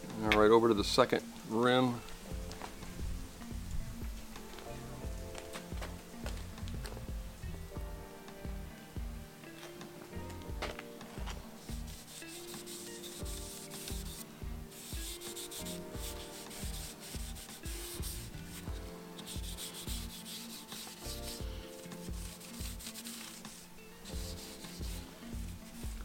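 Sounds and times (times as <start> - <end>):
background music with beat: 0.0 - 26.0
cloth rubbing wood: 9.6 - 26.0.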